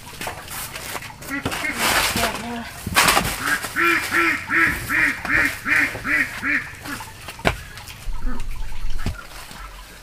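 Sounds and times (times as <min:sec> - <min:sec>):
duck quacking: 0:01.2 - 0:02.6, 0:03.3 - 0:09.9.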